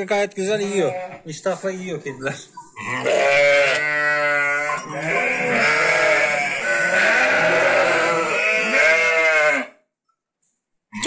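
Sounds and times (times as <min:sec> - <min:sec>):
sheep and lambs bleating: 0:00.6 - 0:01.4, 0:02.7 - 0:09.9.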